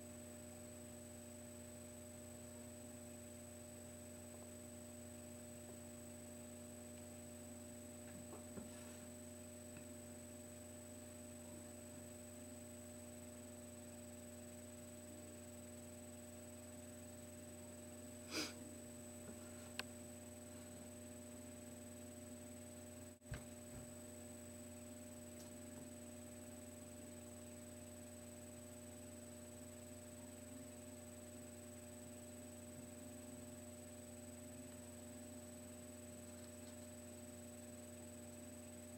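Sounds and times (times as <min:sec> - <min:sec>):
low electrical hum: 0:00.0 - 0:38.9
thin high whine: 0:00.0 - 0:38.9
short breathy noise: 0:18.3 - 0:18.6
small click: 0:19.7 - 0:19.9, 0:25.3 - 0:25.6, 0:36.3 - 0:36.9.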